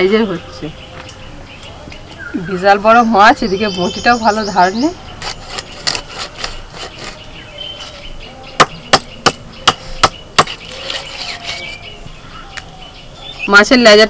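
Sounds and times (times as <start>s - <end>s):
blade chopping fish on wood: 8.6s - 11.6s.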